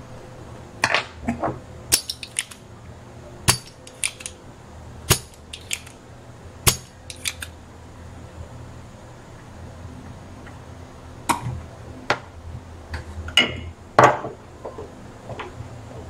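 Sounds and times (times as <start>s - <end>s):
metal tools clicking on circuit board: 1.9s - 2.6s, 3.5s - 4.4s, 5.1s - 6.0s, 6.7s - 7.5s.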